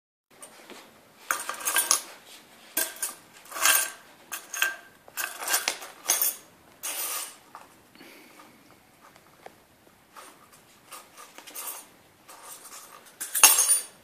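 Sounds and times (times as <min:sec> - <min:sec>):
metal keys jangling on tiles: 0:01.3 - 0:02.0, 0:02.8 - 0:07.4, 0:10.9 - 0:14.0.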